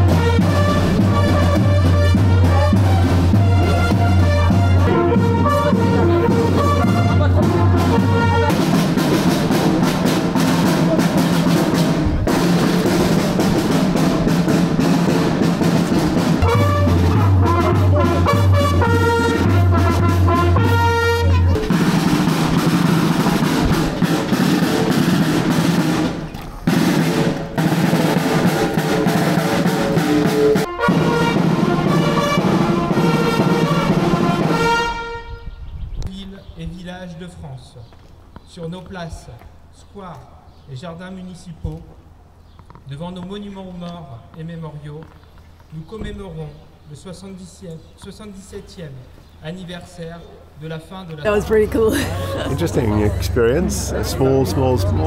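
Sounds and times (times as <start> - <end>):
snare drum rolls: 0.0 - 34.8
marching brass band playing: 0.0 - 35.6, 51.3 - 55.0.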